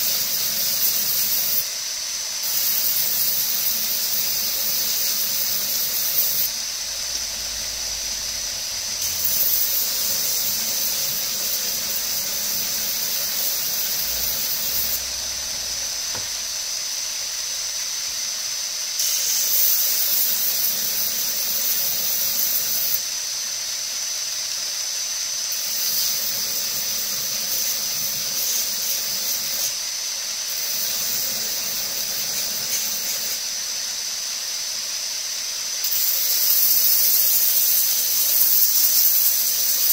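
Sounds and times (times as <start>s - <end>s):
belt grinder grinding: 2.4s - 16.5s.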